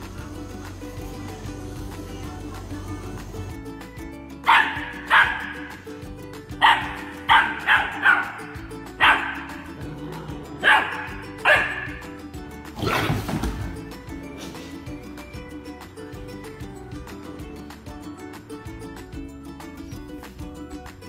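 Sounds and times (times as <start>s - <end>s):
background music: 0.0s - 21.0s
dog barking: 4.5s - 5.7s, 6.6s - 9.6s, 10.6s - 12.0s.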